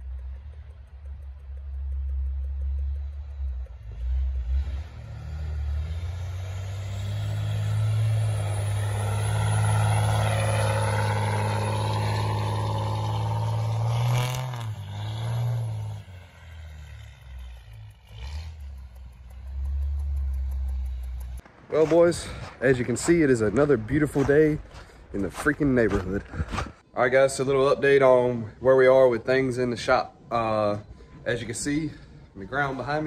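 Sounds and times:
truck engine revving hard: 0:03.8 - 0:21.4.

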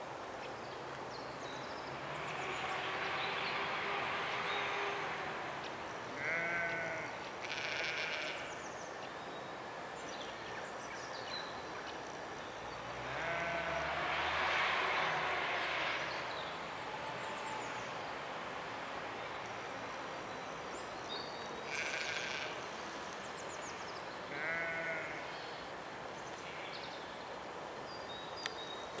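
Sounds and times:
sheep bleating: 0:06.2 - 0:08.5, 0:13.1 - 0:13.9, 0:21.7 - 0:22.6, 0:24.3 - 0:25.3.

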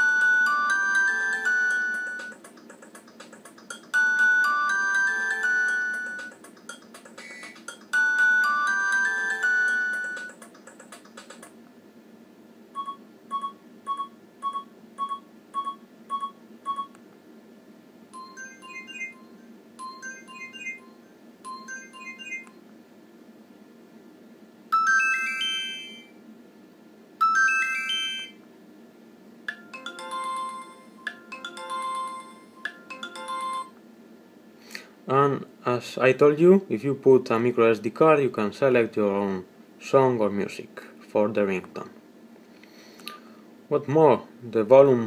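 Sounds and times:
phone ringtone melodies: 0:00.0 - 0:10.9, 0:18.2 - 0:22.5, 0:24.7 - 0:26.1, 0:27.2 - 0:28.4, 0:29.5 - 0:33.8.

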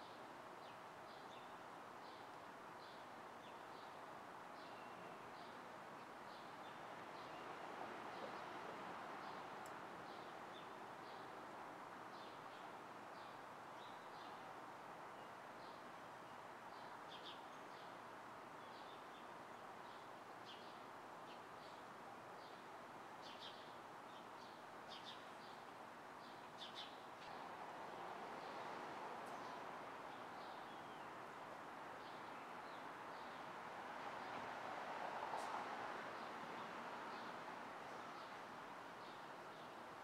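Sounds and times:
distant city traffic hum: 0:05.2 - 0:13.8, 0:19.4 - 0:40.0.

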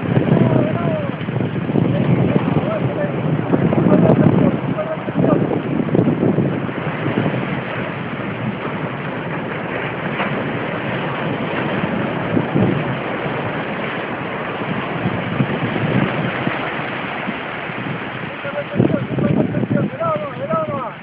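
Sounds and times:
surf breaking on beach: 0:00.0 - 0:21.0
wind buffeting microphone: 0:00.0 - 0:21.0.

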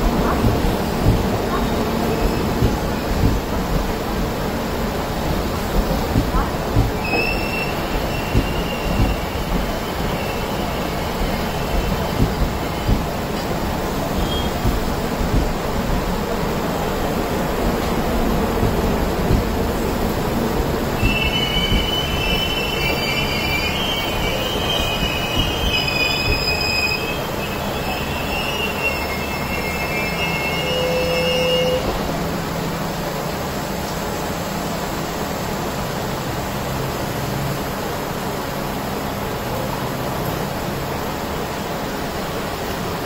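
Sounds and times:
train coaches rolling rumble: 0:00.0 - 0:43.0
train wheels squealing: 0:07.0 - 0:13.1, 0:14.0 - 0:15.0, 0:21.0 - 0:32.0.

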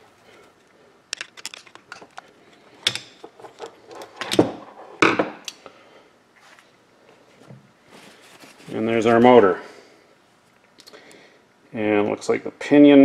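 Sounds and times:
objects knocking on workbench: 0:04.2 - 0:05.4.

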